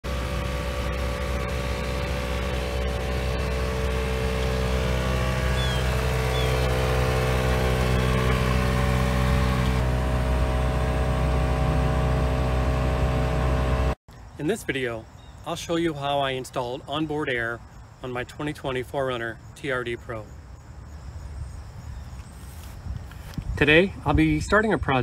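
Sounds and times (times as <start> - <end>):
air compressor motor hum: 0.0 - 14.0.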